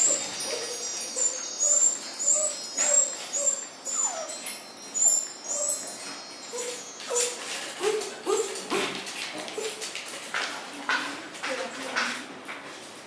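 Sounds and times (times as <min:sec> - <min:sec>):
twinkling chime music: 0:00.0 - 0:07.6
puppies whimpering: 0:00.0 - 0:08.8.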